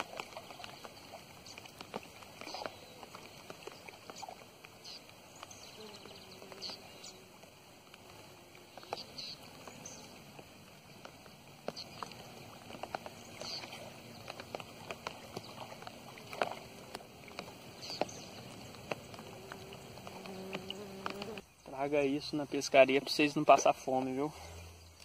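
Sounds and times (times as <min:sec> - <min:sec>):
water sloshing and splashing: 0:00.0 - 0:21.6.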